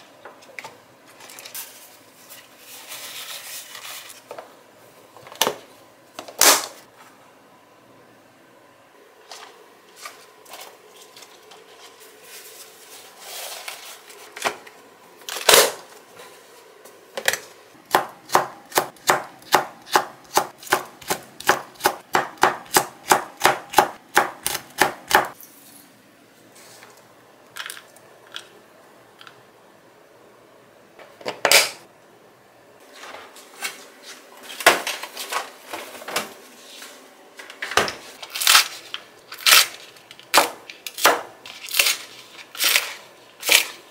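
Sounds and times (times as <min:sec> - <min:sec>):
kitchen knocks and clatters: 0:37.4 - 0:38.2.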